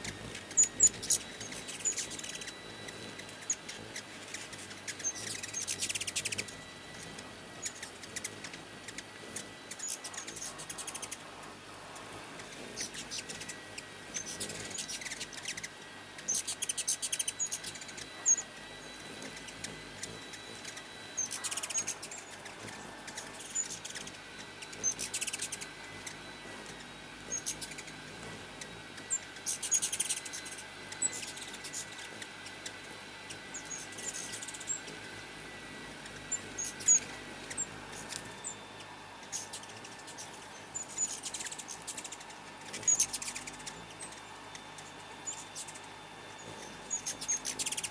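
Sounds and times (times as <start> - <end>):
hummingbirds squeaking and chipping: 0.0 - 47.9.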